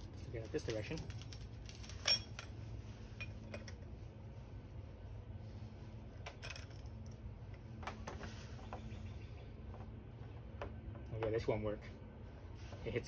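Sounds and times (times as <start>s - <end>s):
handling clicks and clinks: 0.6s - 2.5s.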